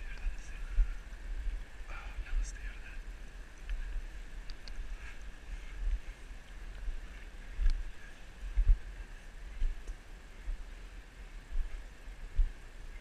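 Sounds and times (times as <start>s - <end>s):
wind buffeting microphone: 0.0s - 13.0s
faint clicks: 4.4s - 5.3s.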